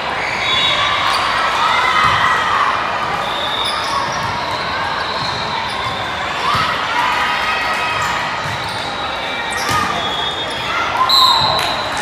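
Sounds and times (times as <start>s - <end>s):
sneakers squeaking on court floor: 3.5s - 6.8s, 8.0s - 12.0s.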